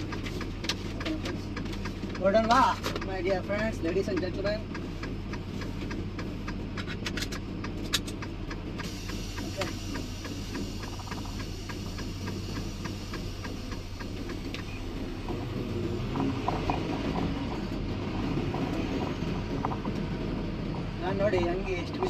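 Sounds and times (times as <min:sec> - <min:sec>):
diesel truck engine humming: 0:00.0 - 0:22.0
regular ticking: 0:00.0 - 0:22.0.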